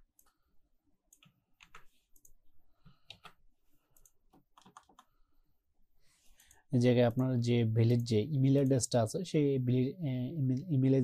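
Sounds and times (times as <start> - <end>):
computer mouse and keyboard clicks: 3.0 - 5.1.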